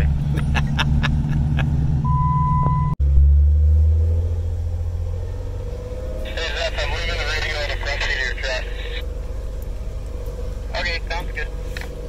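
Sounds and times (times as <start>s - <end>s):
vehicle engine droning: 0.0s - 12.0s
short electronic beep: 2.0s - 3.0s.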